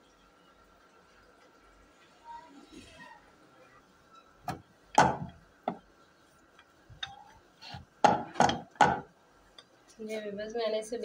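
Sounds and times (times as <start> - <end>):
rolling pin knocking on wooden board: 4.5 - 5.8, 7.7 - 9.1.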